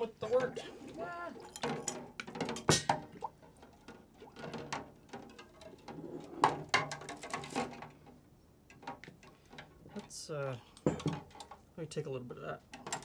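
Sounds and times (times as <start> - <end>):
kitchen utensils knocking and clinking: 1.5 - 3.0.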